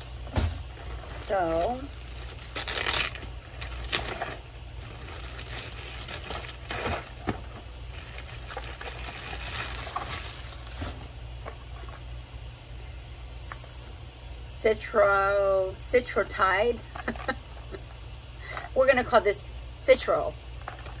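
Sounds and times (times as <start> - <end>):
plastic packaging crinkling: 0.0 - 12.0, 20.6 - 21.0.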